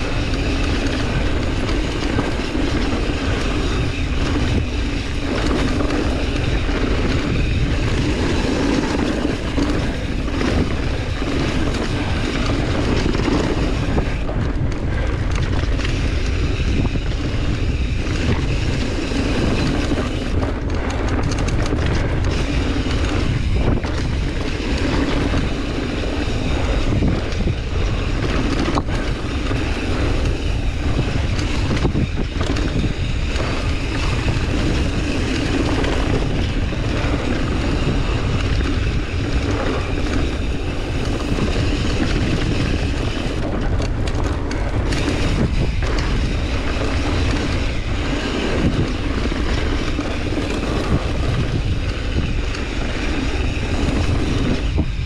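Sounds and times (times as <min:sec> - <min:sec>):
tyres rumbling and bike rattle: 0:00.0 - 0:55.0
wind buffeting microphone: 0:00.0 - 0:55.0.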